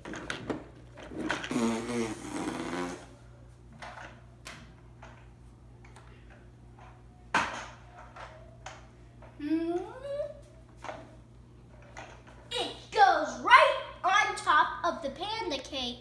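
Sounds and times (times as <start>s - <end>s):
child vocalizing: 9.4s - 10.4s.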